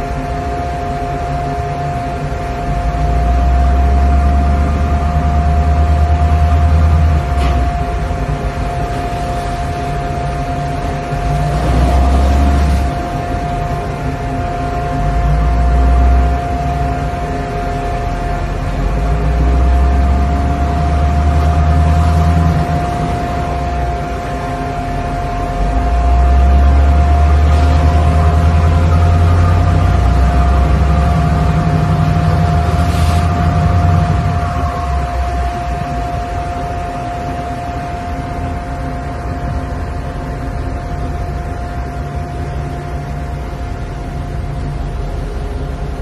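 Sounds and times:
boat engine running: 0:00.0 - 0:46.0
steady whine: 0:00.0 - 0:46.0
wash of noise: 0:02.3 - 0:38.5
low rumble: 0:02.7 - 0:46.0.

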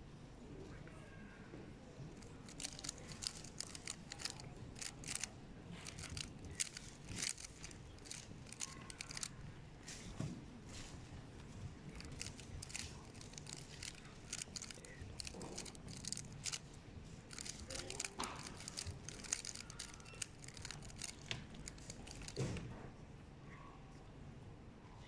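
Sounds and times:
puzzle cube clicking turns: 0:02.2 - 0:09.4, 0:12.0 - 0:16.6, 0:17.3 - 0:22.4.

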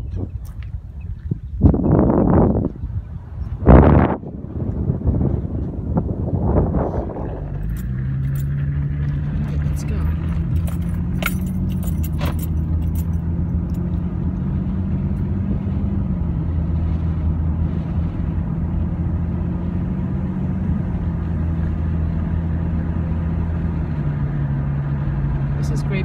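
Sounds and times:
car engine drone: 0:00.0 - 0:26.0
road noise inside car: 0:00.0 - 0:26.0
light jingling clicks: 0:10.2 - 0:14.0.

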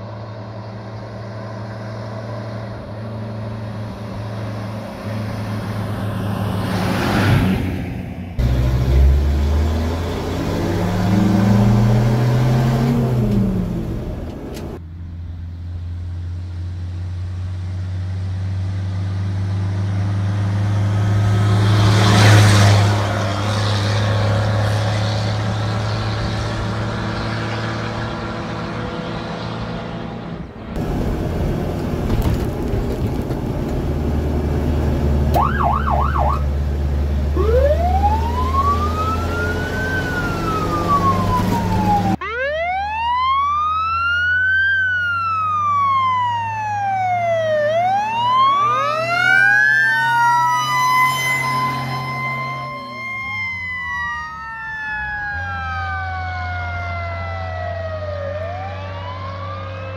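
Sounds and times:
truck engine running loud: 0:00.0 - 0:42.6, 0:43.4 - 0:59.9
siren chirps: 0:35.3 - 0:36.5, 0:37.3 - 0:59.9
siren wailing: 0:35.3 - 0:36.5, 0:37.3 - 0:59.9.

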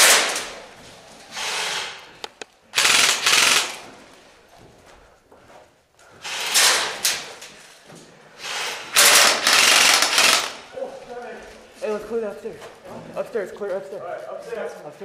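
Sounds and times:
airsoft gun full-auto bursts: 0:02.7 - 0:03.9, 0:08.6 - 0:10.7.

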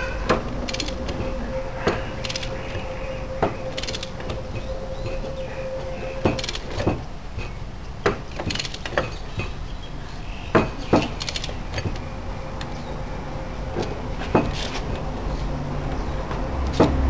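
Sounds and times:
sharp metal knocks and clanks: 0:00.0 - 0:09.8, 0:10.5 - 0:12.1, 0:13.8 - 0:15.1.

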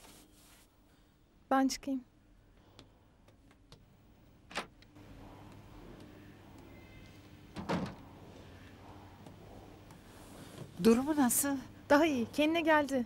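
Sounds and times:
low room hum: 0:00.0 - 0:13.0.

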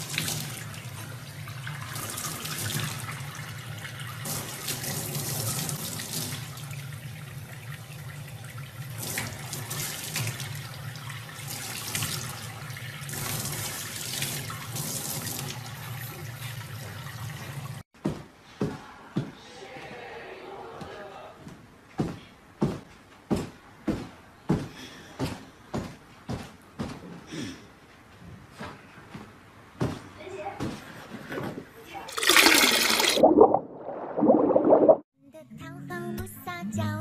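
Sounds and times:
tap water running into sink: 0:32.1 - 0:33.6
water splashing: 0:32.1 - 0:35.0.

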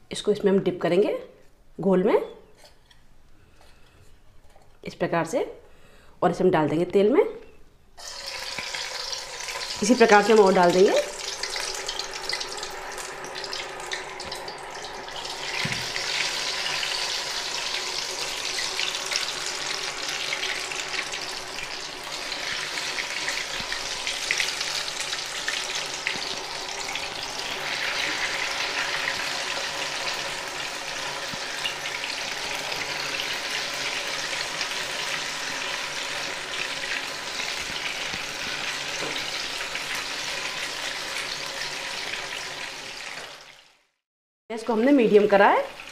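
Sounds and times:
oil sizzling and crackling: 0:08.0 - 0:44.0, 0:45.2 - 0:45.9.

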